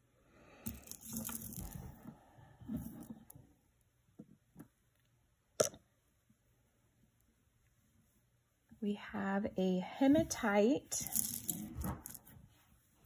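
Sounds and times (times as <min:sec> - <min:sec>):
cloth and jewelry rustling: 0:00.7 - 0:03.3, 0:10.0 - 0:13.0.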